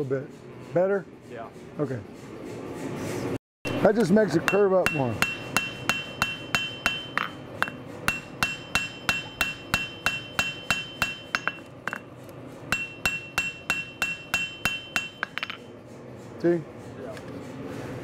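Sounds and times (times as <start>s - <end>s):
hammer striking blade on anvil: 3.7s - 12.1s, 12.7s - 15.7s.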